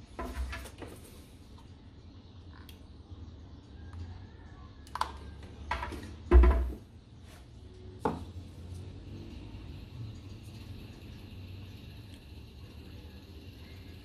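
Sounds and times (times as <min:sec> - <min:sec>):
faint steady hum: 0:00.0 - 0:14.0
tools knocking on workbench: 0:05.7 - 0:06.8.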